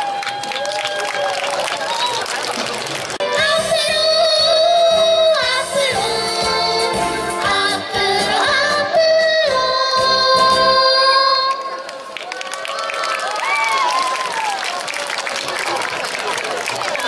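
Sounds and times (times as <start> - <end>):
children's choir singing: 3.2 - 11.8.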